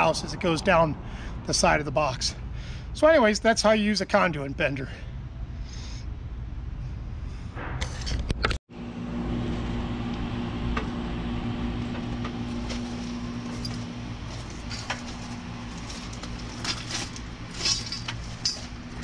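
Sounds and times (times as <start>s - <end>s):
low motor hum: 6.1s - 19.0s.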